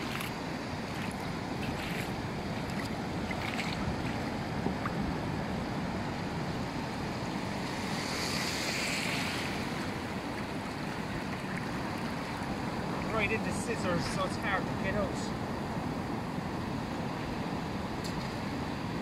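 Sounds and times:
surf washing around legs: 0.0s - 14.4s
wave washing in: 7.5s - 13.8s.

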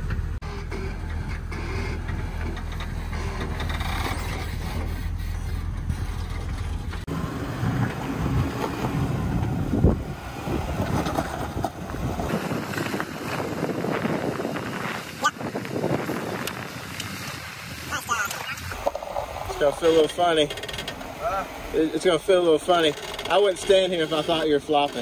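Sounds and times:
engine running low: 0.0s - 25.0s
wind buffeting microphone: 4.3s - 19.9s.

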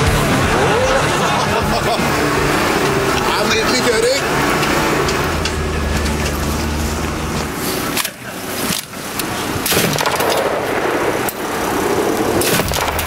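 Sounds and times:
vehicle engine running: 0.0s - 13.0s
machine gun firing: 9.7s - 11.3s, 12.4s - 13.0s.

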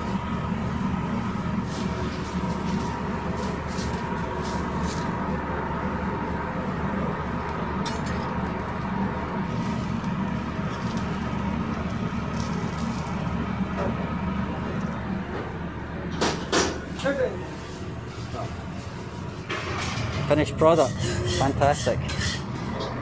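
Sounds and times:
kitchen equipment drone: 0.0s - 23.0s
metal spatula scraping griddle: 19.5s - 23.0s.

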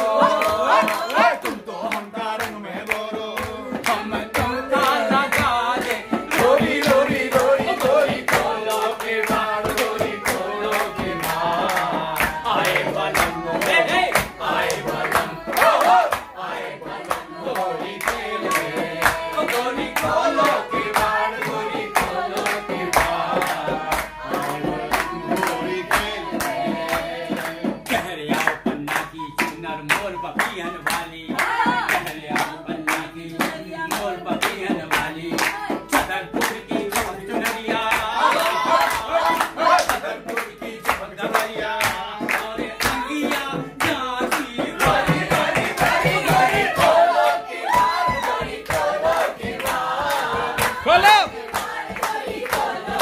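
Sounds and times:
group clapping in time: 0.0s - 53.0s
voices singing along: 0.0s - 53.0s
bamboo flute folk melody: 47.6s - 48.5s.

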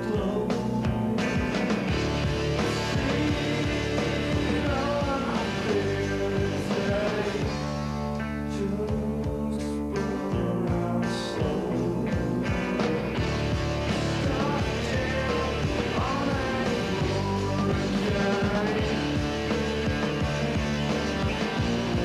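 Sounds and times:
person singing: 0.0s - 1.4s, 2.7s - 7.6s, 8.4s - 13.1s, 13.9s - 19.3s
bass guitar: 0.0s - 22.0s
drums: 0.0s - 22.0s
electric guitars: 0.0s - 22.0s.

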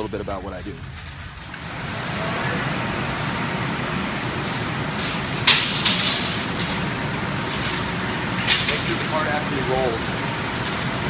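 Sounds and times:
metal shopping carts clattering: 0.0s - 1.6s, 4.4s - 11.0s.

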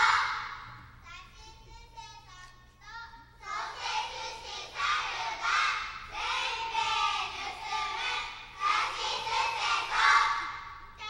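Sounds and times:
children reciting in unison: 0.0s - 0.7s, 3.4s - 10.8s.

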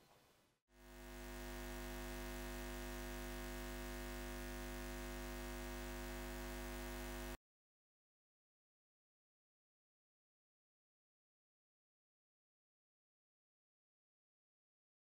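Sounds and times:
neon sign electrical hum: 0.8s - 7.4s.

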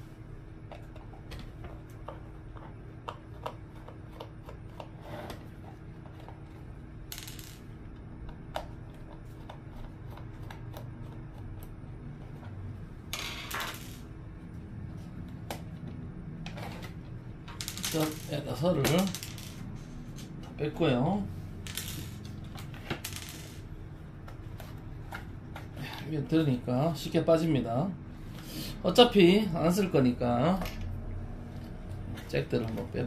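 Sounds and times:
loose parts rattling: 16.5s - 20.6s.

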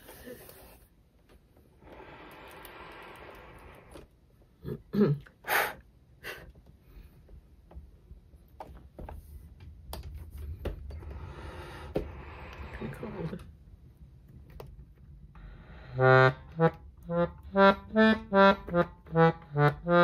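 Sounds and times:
person gasping: 11.1s - 13.4s
soft accordion: 15.6s - 20.0s
accordion keys clicking: 16.0s - 20.0s.

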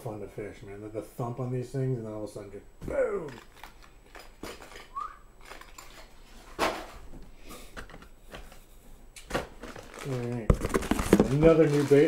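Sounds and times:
packaging rustling: 3.3s - 6.5s, 9.3s - 12.0s
knocks of packages in box: 9.2s - 12.0s.

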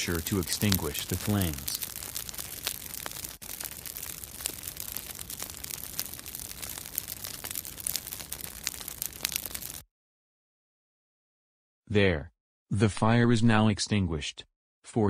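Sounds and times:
fire crackling and popping: 0.0s - 9.8s.

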